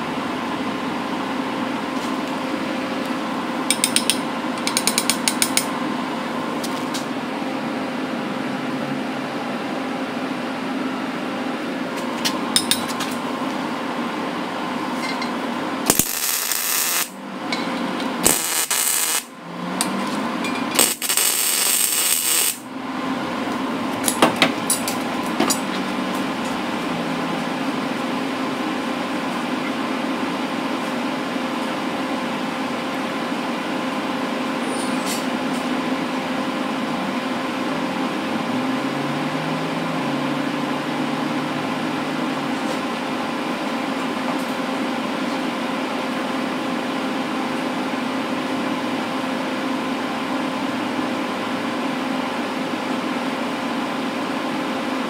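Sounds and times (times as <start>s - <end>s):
electric fan hum: 0.0s - 55.0s
low rising tone: 38.2s - 42.5s.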